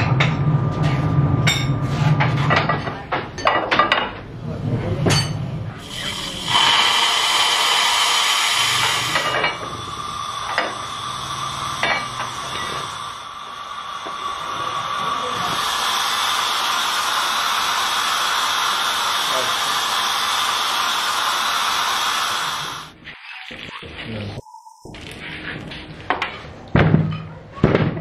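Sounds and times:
steam hissing: 5.7 - 23.0.

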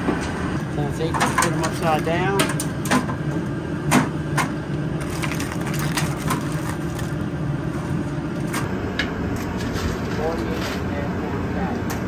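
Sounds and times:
crab shells clattering on metal: 5.0 - 7.1.

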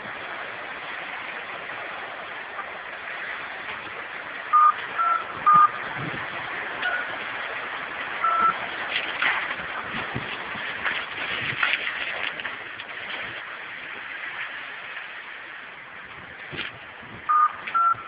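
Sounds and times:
mud and water rushing: 0.0 - 18.0
short high beeps: 4.6 - 5.8, 6.8 - 7.1, 8.2 - 8.6, 17.3 - 18.0.

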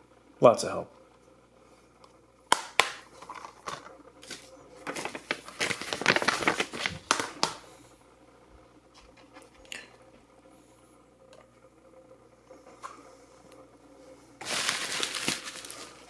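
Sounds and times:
paper and plastic rustling: 3.2 - 7.6, 14.4 - 16.0.

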